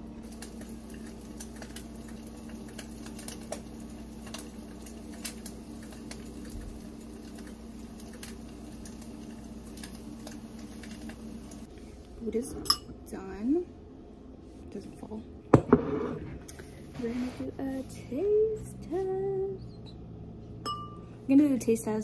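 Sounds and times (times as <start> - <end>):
steady low hum: 0.0 - 22.0
egg frying with pops and crackles: 0.2 - 11.7.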